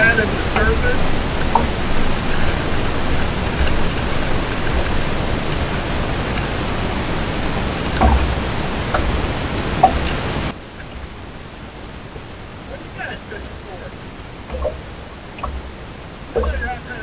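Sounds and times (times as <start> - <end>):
faint clicks: 0.0 - 11.0
low buffeting thumps: 0.0 - 17.0
wind noise on microphone: 0.0 - 17.0.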